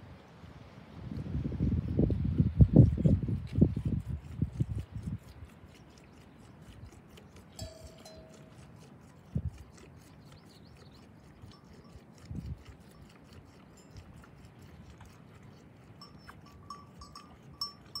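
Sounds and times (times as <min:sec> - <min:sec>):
animal bell ringing: 0:07.6 - 0:08.8, 0:11.4 - 0:12.3, 0:12.9 - 0:14.8, 0:16.0 - 0:18.0.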